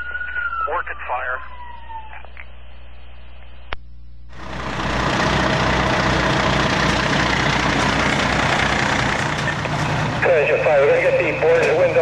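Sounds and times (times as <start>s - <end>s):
heavy diesel engine running: 4.3s - 12.0s.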